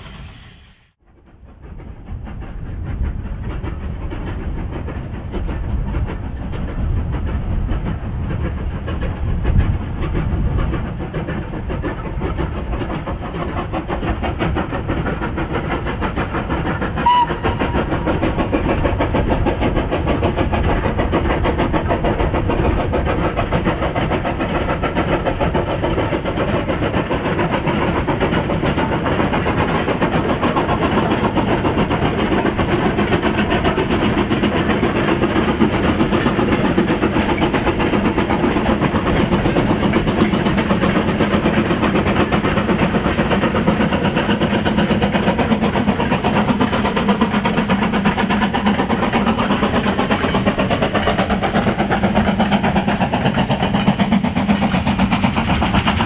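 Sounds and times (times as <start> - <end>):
steam locomotive exhaust beating: 0.0 - 56.0
train whistle toot: 17.0 - 17.8.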